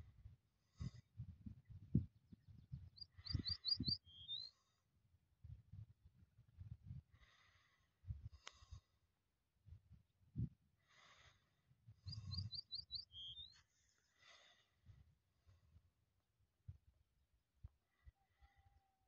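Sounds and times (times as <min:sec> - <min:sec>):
small bird chirping: 0:02.6 - 0:04.6, 0:12.0 - 0:13.6
faint bird calls: 0:03.0 - 0:04.8, 0:12.0 - 0:13.7.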